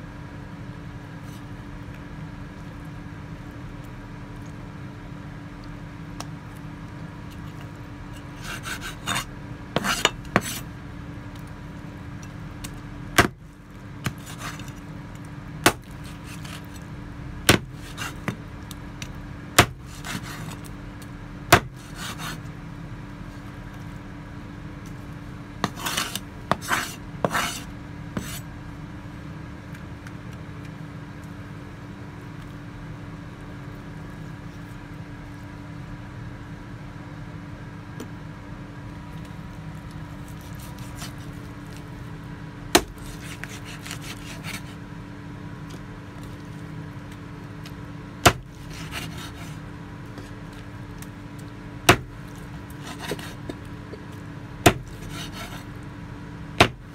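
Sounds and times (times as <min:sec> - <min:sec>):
blade scraping across board: 0:08.2 - 0:10.7, 0:14.1 - 0:14.8, 0:15.8 - 0:16.8, 0:17.7 - 0:18.4, 0:19.8 - 0:20.7, 0:21.8 - 0:22.5, 0:25.6 - 0:28.5, 0:40.3 - 0:41.4, 0:43.0 - 0:44.8, 0:48.6 - 0:49.6, 0:52.7 - 0:53.6, 0:54.8 - 0:55.7
cleaver chopping on wooden board: 0:08.4 - 0:10.6, 0:13.2 - 0:13.4, 0:15.6 - 0:16.6, 0:17.4 - 0:18.4, 0:19.6 - 0:20.5, 0:21.5 - 0:22.4, 0:25.6 - 0:27.6, 0:42.7 - 0:44.7, 0:48.2 - 0:49.5, 0:51.9 - 0:52.1, 0:52.8 - 0:53.6, 0:54.6 - 0:55.6, 0:56.6 - 0:56.9.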